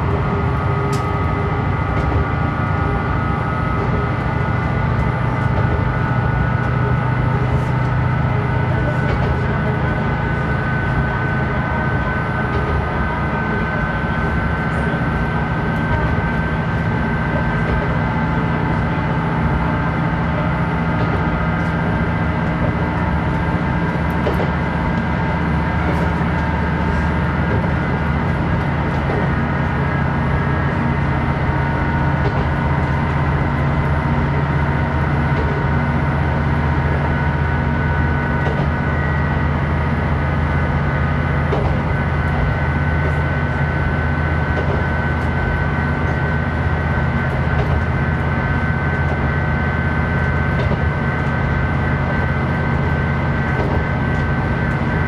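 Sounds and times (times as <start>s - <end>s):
diesel railcar engine drone: 0.0s - 55.0s
wheel and rail noise: 0.0s - 55.0s.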